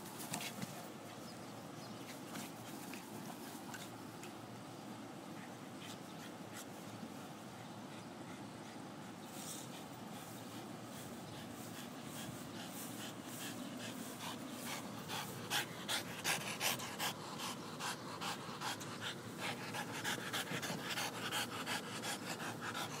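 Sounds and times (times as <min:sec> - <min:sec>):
dog panting: 0:05.2 - 0:23.0.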